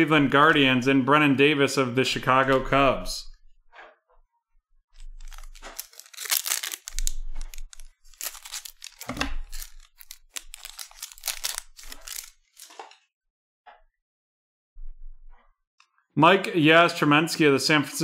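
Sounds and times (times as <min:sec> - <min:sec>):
foil wrapper crinkling and tearing: 0:05.0 - 0:12.8.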